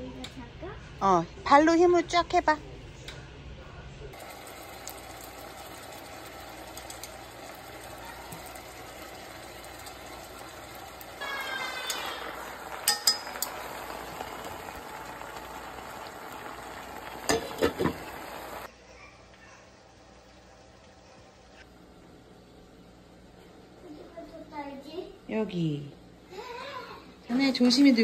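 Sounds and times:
fish sizzling in oil: 4.2 - 18.7
lid knocking against pot: 17.3 - 18.1.

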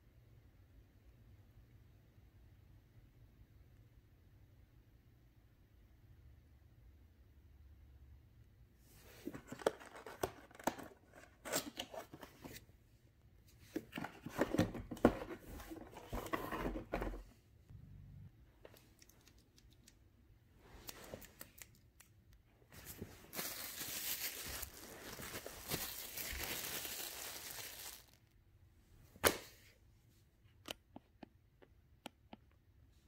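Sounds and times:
plastic bag crinkling: 22.8 - 28.3.

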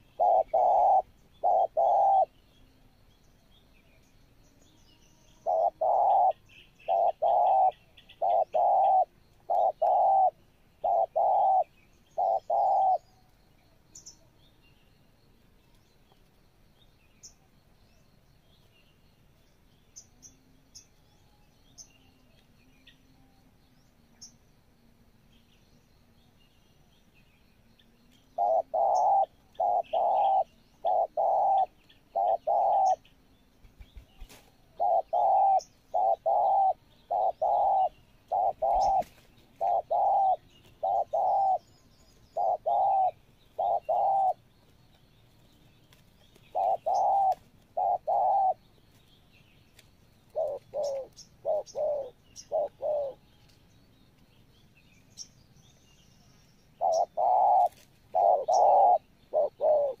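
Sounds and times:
doves cooing: 0.0 - 2.5, 5.3 - 13.2, 28.4 - 33.1, 34.2 - 44.5, 46.0 - 48.8, 50.2 - 53.3, 56.8 - 60.0
small birds chirping: 0.0 - 60.0.

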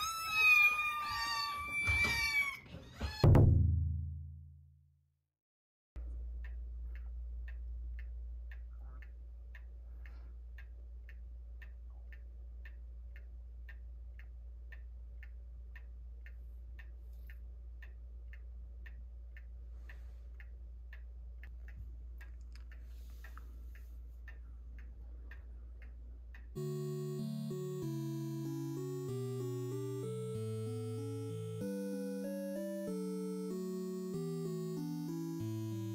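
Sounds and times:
clock ticking: 6.0 - 35.9
low steady hum: 6.0 - 35.9
background music: 26.6 - 35.9.

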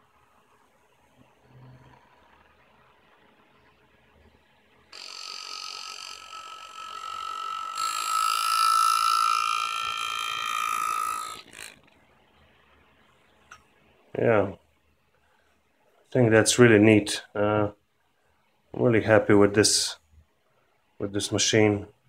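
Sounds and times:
engraving handpiece buzzing: 4.9 - 11.9.

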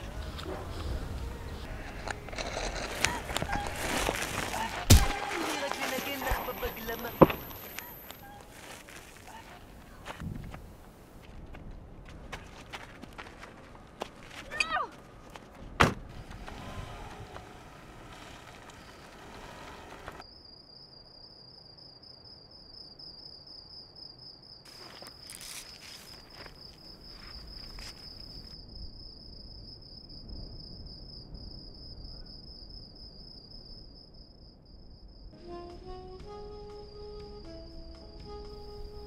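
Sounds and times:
cricket chirring: 0.0 - 11.2, 16.1 - 35.4
rustling noise: 0.0 - 20.2, 24.7 - 28.6
plucked melody music: 35.4 - 39.0.

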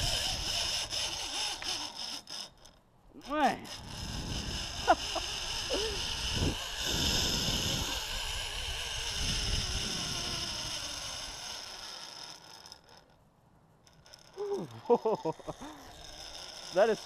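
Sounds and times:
wind rushing over microphone: 0.0 - 0.9, 3.7 - 11.0
zip line trolley whirring on cable: 0.0 - 13.2, 13.8 - 17.0.

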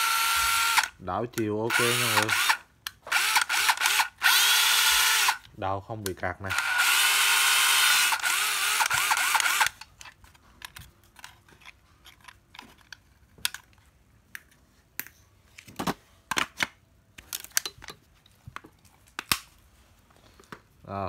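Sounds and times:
clicks and taps of objects handled: 9.8 - 19.4.

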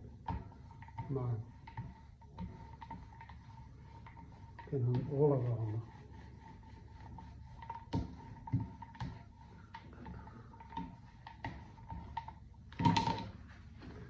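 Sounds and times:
light clicks and taps from roller: 0.0 - 13.4
paint roller on wet paper: 0.0 - 14.0.

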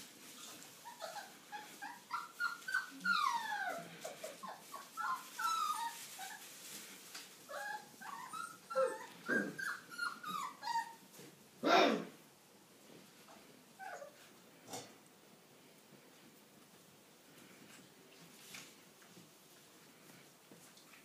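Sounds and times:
puppies whimpering and yipping: 0.4 - 6.5, 7.5 - 11.1.

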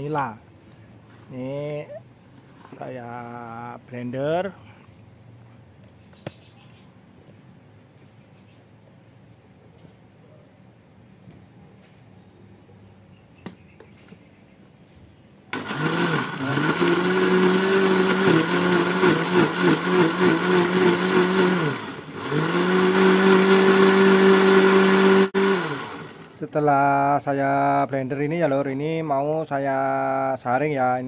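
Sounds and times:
blender motor whirring: 15.5 - 26.3.

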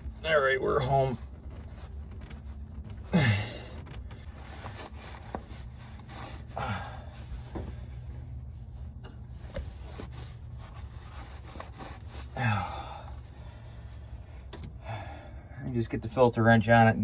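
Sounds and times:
rag rubbing: 0.0 - 12.4
steady low hum: 0.0 - 17.0.

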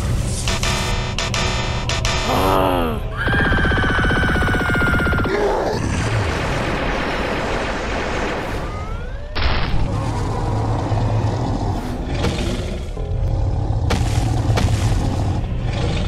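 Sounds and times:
cartoon booms and blasts: 3.3 - 10.5.

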